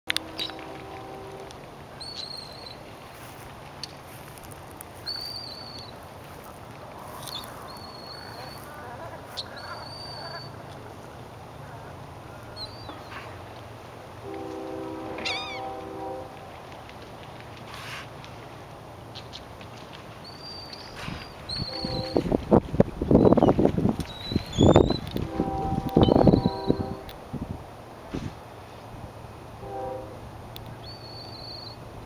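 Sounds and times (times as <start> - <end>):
birds whistling calls: 5.0 - 6.0, 7.2 - 10.6, 12.5 - 13.2, 15.2 - 15.8, 20.2 - 22.2, 23.2 - 27.0, 30.8 - 31.8.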